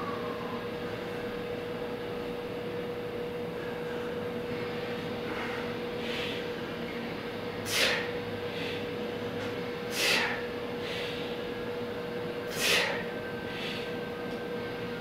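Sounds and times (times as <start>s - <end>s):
steady low hum: 0.0s - 15.0s
man exhaling forcefully: 7.6s - 8.9s, 9.9s - 11.2s, 12.5s - 13.9s.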